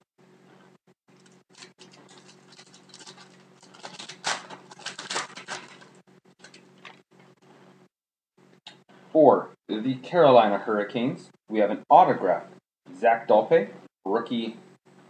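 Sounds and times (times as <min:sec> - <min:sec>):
wrapper crinkling and rustling: 0:01.1 - 0:07.0.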